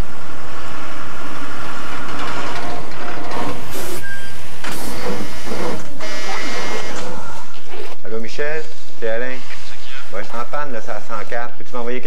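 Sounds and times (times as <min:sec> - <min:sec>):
bus engine running: 0:00.0 - 0:07.4
sharp noise: 0:00.0 - 0:10.9.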